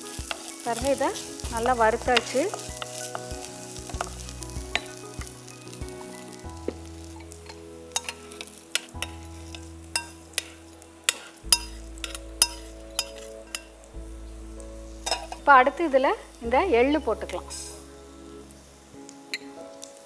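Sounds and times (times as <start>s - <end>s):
hot oil sizzling: 0.0s - 20.0s
spatula scraping a pan: 7.2s - 13.7s.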